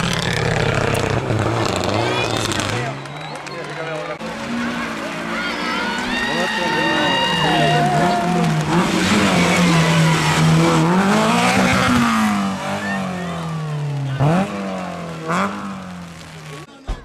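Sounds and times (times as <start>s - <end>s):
rally car engine revving: 0.0s - 16.7s.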